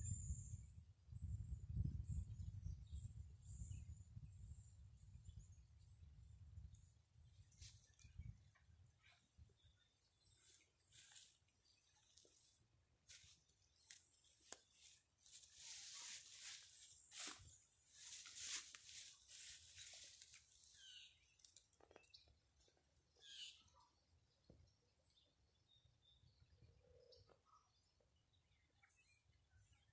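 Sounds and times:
rustling of dry vegetation: 6.0s - 23.7s.

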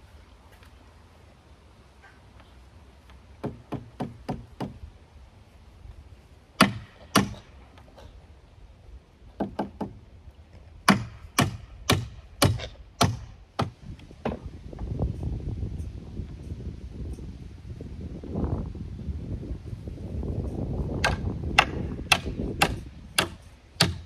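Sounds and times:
hammer striking wood: 3.4s - 4.8s, 6.6s - 7.5s, 9.4s - 10.0s, 10.8s - 14.5s, 21.0s - 24.0s.

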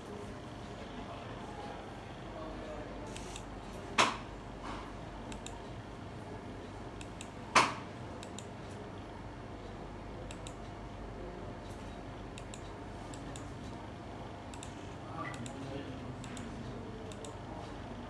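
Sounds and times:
steady room hum: 0.0s - 18.0s
computer keys clicking: 10.2s - 10.7s, 12.3s - 13.5s, 17.1s - 17.4s.

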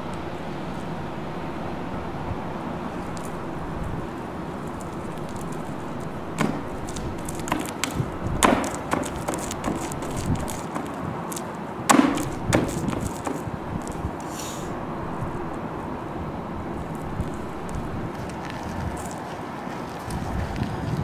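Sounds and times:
outdoor background noise: 0.0s - 21.0s
slippers stepping in wet mud: 3.0s - 15.7s.

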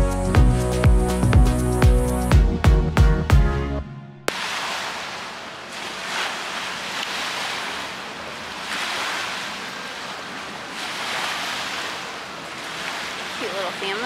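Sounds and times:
lake waves washing onto shore: 4.3s - 14.0s.

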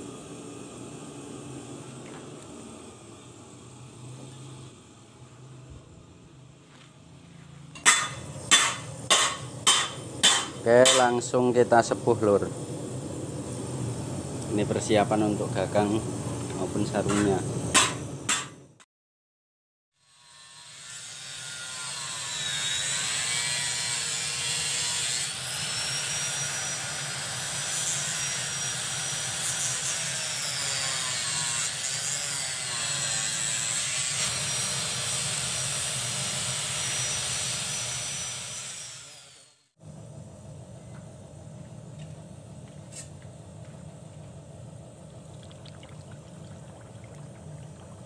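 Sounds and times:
quiet steady hum: 39.9s - 48.0s.

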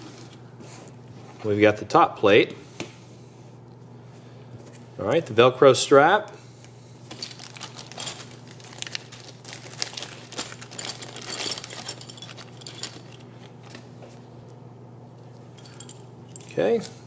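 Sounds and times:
plastic bag crinkling: 7.1s - 13.8s
parts clicking and clinking: 7.1s - 13.9s, 15.6s - 17.0s.

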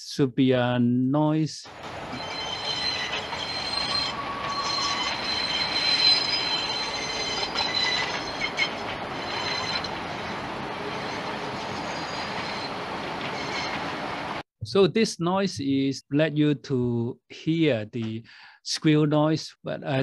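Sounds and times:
train rolling noise: 1.7s - 14.4s
train wheels squealing: 1.7s - 14.4s.

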